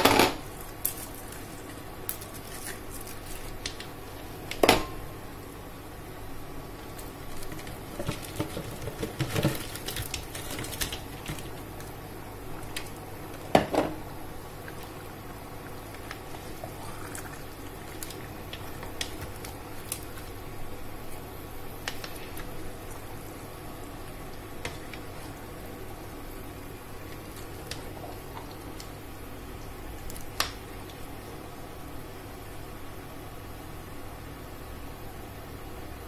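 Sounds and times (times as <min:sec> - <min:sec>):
soup simmering: 0:05.2 - 0:33.3.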